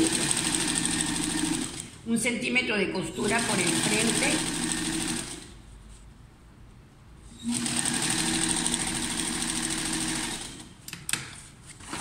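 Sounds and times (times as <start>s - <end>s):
sewing machine stitching: 0.0s - 1.9s, 3.2s - 5.5s, 7.4s - 10.7s.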